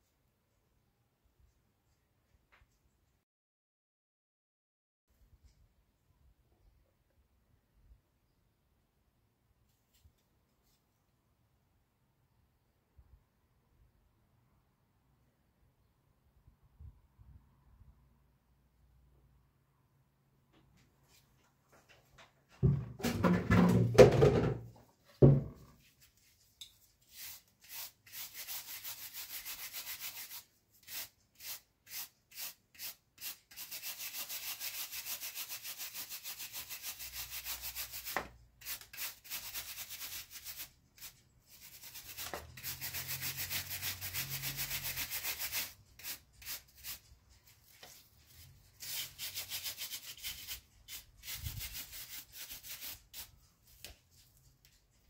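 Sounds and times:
scabbard knocking on wooden bench: 0:22.6 - 0:25.6
wire brush scrubbing metal: 0:27.1 - 0:47.5, 0:48.8 - 0:53.3.

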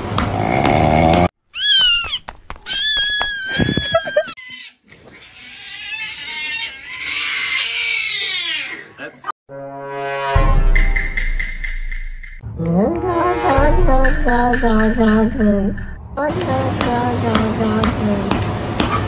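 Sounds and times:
rasping snore-like sound: 0:00.3 - 0:01.3
high cat meows: 0:01.5 - 0:08.7.

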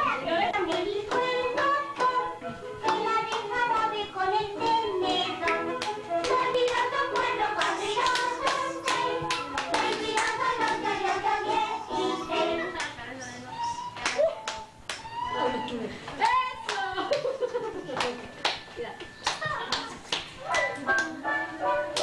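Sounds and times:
rhythmic clapping: 0:00.0 - 0:15.3, 0:16.1 - 0:22.0
group of people singing: 0:00.5 - 0:12.8.

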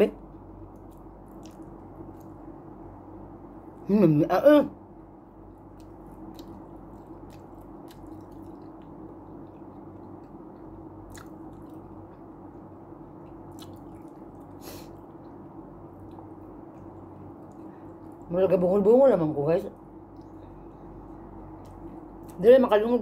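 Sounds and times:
low room hum: 0:00.0 - 0:23.0
person chewing food: 0:00.3 - 0:02.8, 0:05.4 - 0:18.3, 0:20.1 - 0:22.4.

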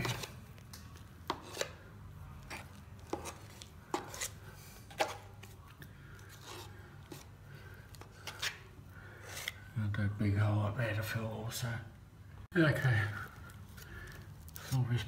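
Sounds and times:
hand tool scraping plaster: 0:00.0 - 0:00.4, 0:01.2 - 0:01.8, 0:02.4 - 0:05.5, 0:06.3 - 0:07.3.

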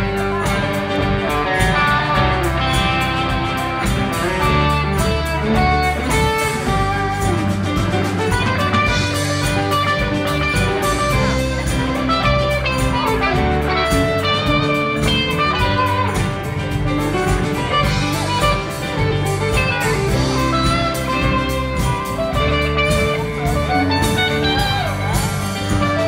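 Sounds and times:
electric guitar lead lines: 0:00.0 - 0:26.0
live rock band playing: 0:00.0 - 0:26.0.

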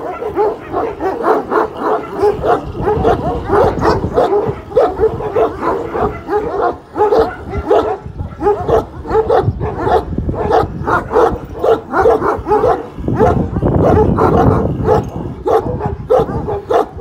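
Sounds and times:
dogs barking: 0:00.0 - 0:17.0.

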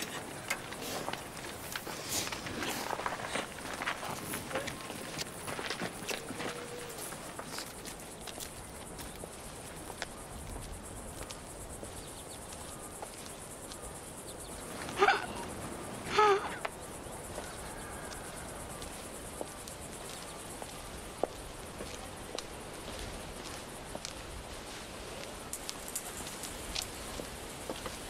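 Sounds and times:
insects chirring: 0:00.0 - 0:28.0
woman crying out high-pitched: 0:15.0 - 0:15.5, 0:16.1 - 0:16.6.

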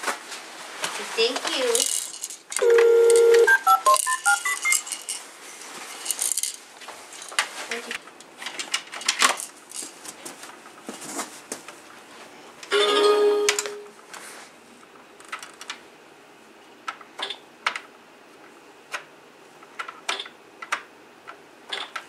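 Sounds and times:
electronic toy tone: 0:02.6 - 0:04.8
short beeps at different pitches: 0:02.6 - 0:04.8.

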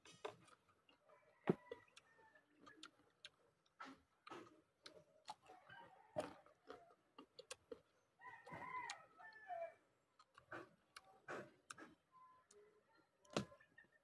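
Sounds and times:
man chewing crunchy fruit: 0:00.0 - 0:09.0, 0:10.1 - 0:12.0
rooster crowing: 0:08.2 - 0:09.8.

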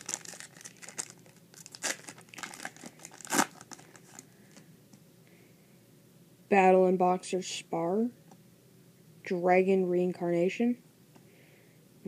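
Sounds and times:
foil wrapper crinkling and tearing: 0:00.0 - 0:04.3.

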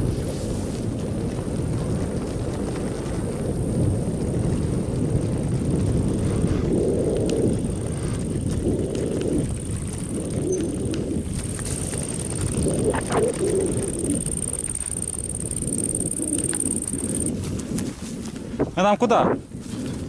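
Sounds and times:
wind buffeting microphone: 0:00.0 - 0:20.0
clicks and rattles over bumps: 0:04.5 - 0:18.7.

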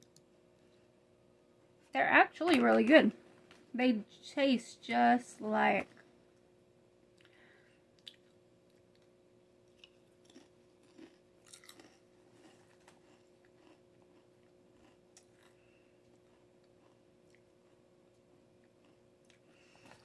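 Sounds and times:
person chewing crisp chip: 0:08.0 - 0:20.0.

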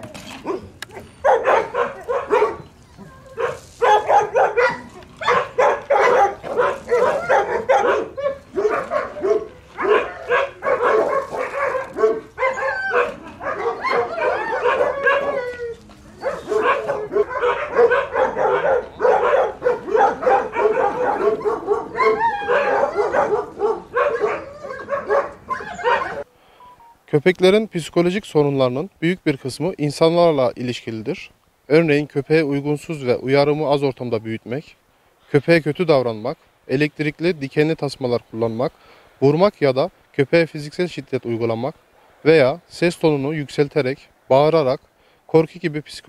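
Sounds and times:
dogs barking: 0:00.0 - 0:26.3.

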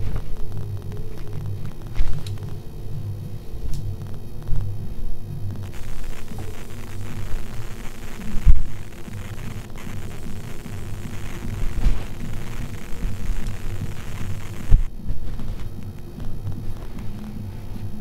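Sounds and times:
low throbbing hum: 0:00.0 - 0:18.0.

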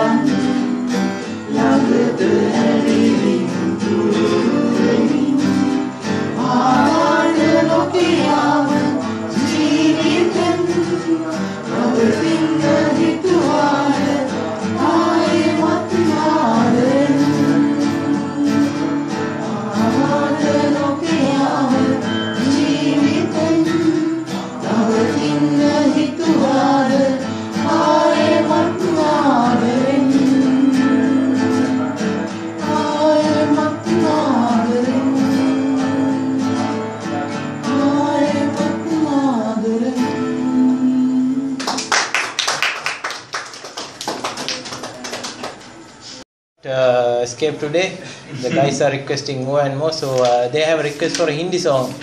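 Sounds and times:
strummed acoustic guitar: 0:00.0 - 0:41.8
audience applauding: 0:41.6 - 0:45.8.

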